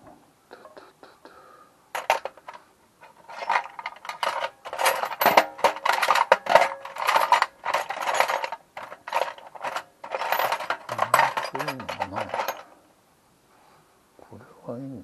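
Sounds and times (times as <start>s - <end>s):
metal hand tools clinking: 2.0s - 12.8s.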